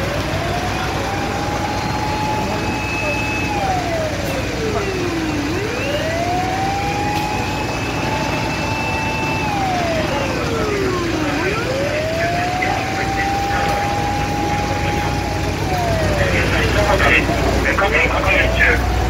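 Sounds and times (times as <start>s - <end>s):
engine rumble: 0.0s - 19.0s
fire engine siren wailing: 0.0s - 19.0s.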